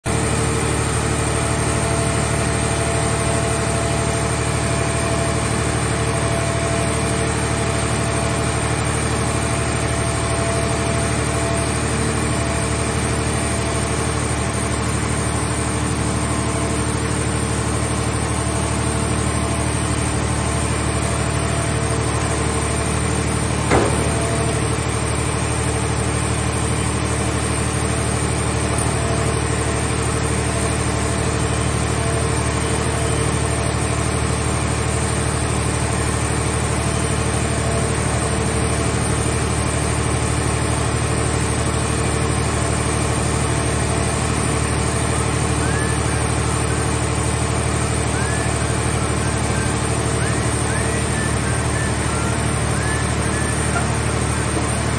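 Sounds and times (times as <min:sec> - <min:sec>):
machine droning hum: 0:00.1 - 0:54.9
short metallic knock: 0:23.6 - 0:24.9.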